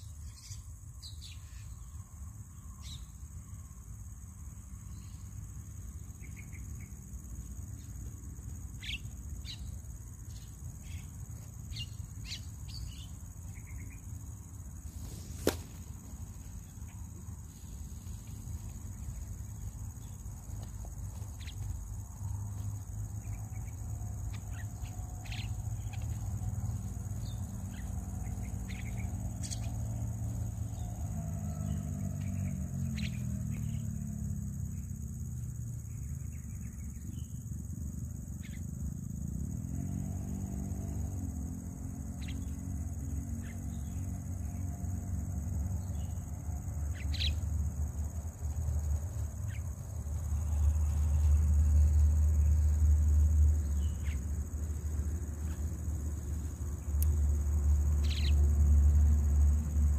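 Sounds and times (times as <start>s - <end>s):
insect chirring: 0.0s - 59.9s
bird chirps: 58.0s - 58.4s.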